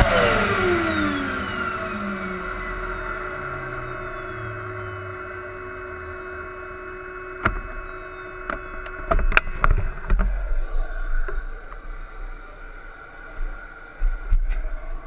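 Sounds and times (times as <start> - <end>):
falling high tones: 0.0 - 8.5
model jet mechanical whine: 0.0 - 15.0.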